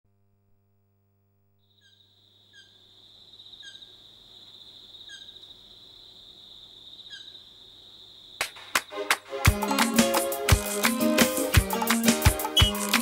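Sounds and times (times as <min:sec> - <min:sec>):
insects trilling: 0:01.6 - 0:09.0.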